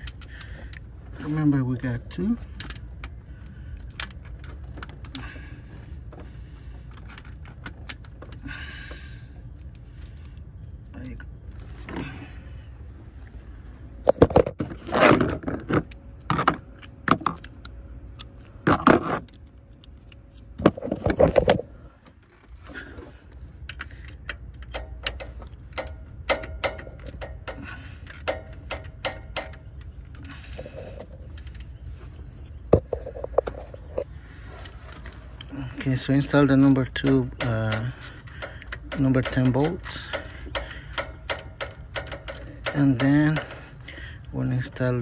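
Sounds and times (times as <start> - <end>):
metal clinks of tool and bolts: 23.6 - 31.7, 36.0 - 43.8
metal clattering: 36.4 - 43.8.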